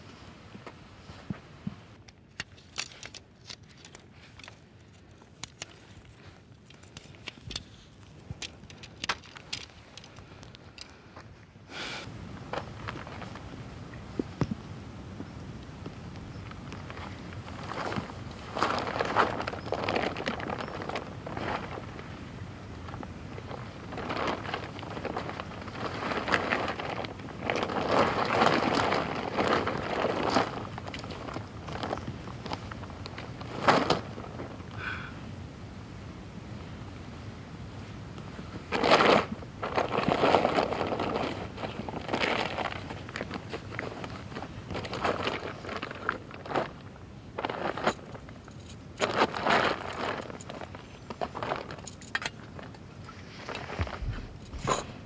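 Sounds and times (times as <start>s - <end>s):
tent fabric rustling: 16.7s - 34.6s, 38.4s - 55.0s.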